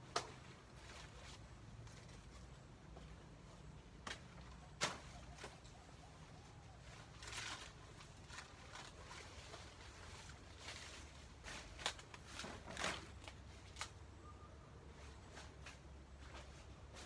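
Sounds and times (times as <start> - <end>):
leaves rustling: 0.0 - 17.0
stalks snapping: 11.7 - 14.0.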